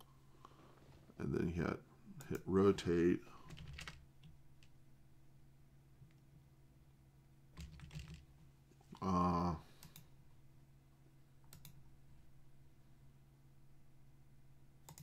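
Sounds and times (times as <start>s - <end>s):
keyboard and mouse clicks: 11.5s - 11.8s.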